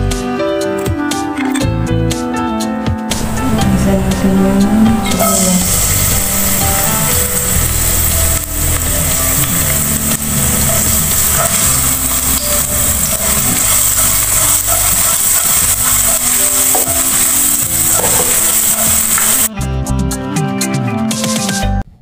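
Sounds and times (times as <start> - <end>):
garlic sizzling in hot oil: 3.2 - 19.5.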